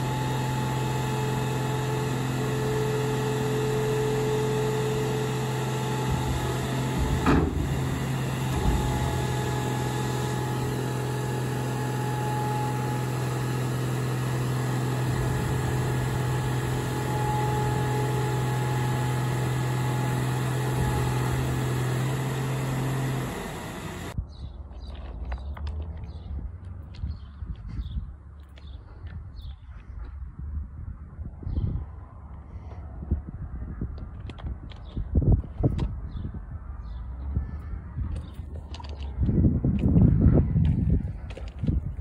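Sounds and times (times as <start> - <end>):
hydraulic power unit droning: 0.0 - 24.2
machine clunk: 6.0 - 12.6.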